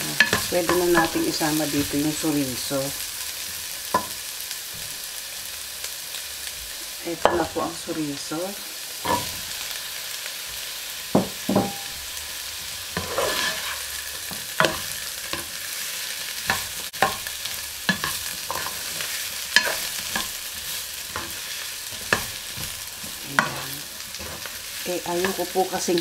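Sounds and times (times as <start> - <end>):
vegetables sizzling in a pan: 0.0 - 26.0
spatula knocking and scraping pan: 0.1 - 1.6, 3.9 - 5.0, 11.1 - 12.0, 12.9 - 15.6, 16.4 - 25.5.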